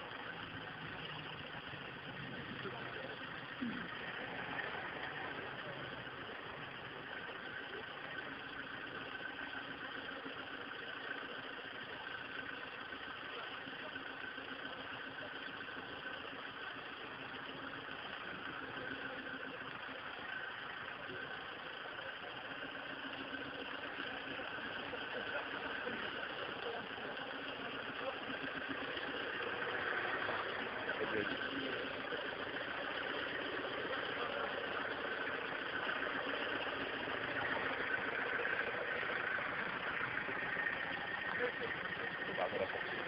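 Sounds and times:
off-road engine running at low revs: 0.0 - 43.0.

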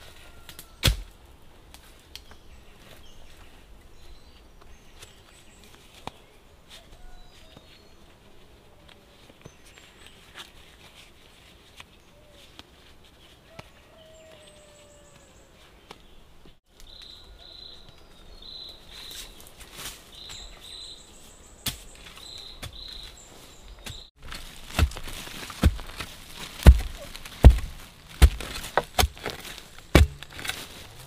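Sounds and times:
rustling and snapping bamboo: 0.0 - 3.0, 23.8 - 31.0.

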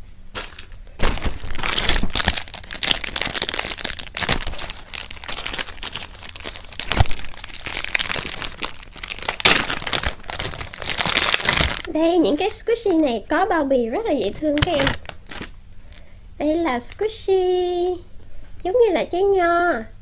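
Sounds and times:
plastic packaging crinkling: 0.3 - 12.0, 14.4 - 16.0.

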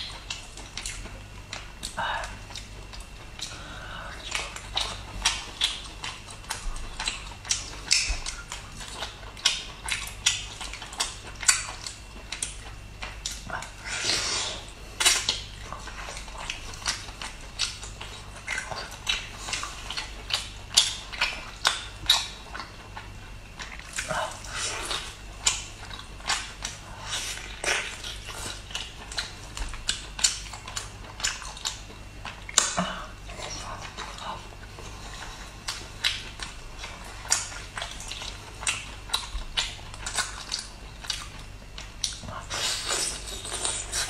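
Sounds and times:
mouth smacks and chewing clicks: 0.0 - 3.6, 4.2 - 13.8, 33.4 - 44.0
person chewing food: 0.0 - 44.0.

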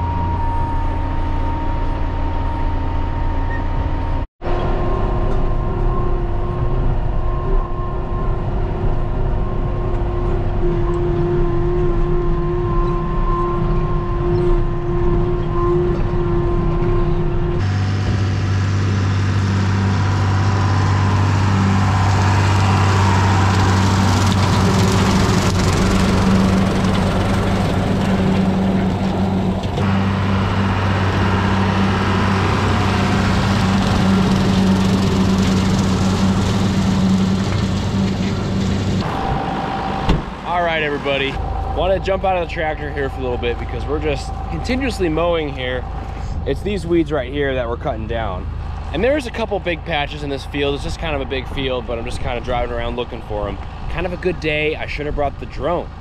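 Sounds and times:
tractor diesel engine running: 0.0 - 56.0
mower blades chopping weeds: 17.7 - 39.0.

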